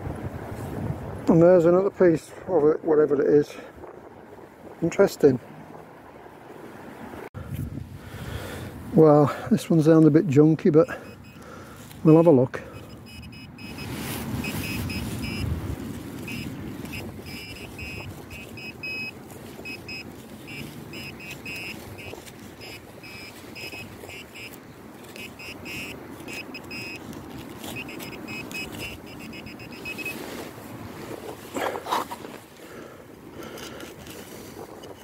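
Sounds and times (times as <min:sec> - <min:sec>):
wind and handling rumble: 0:00.0 - 0:35.0
pinpointer beeping: 0:10.7 - 0:11.4, 0:12.1 - 0:15.6, 0:16.2 - 0:30.2.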